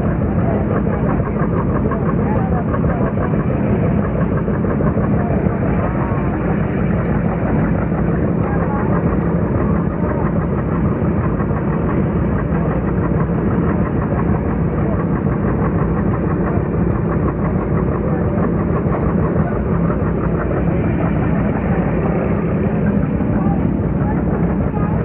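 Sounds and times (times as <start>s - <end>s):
tractor engine running: 0.0s - 25.0s.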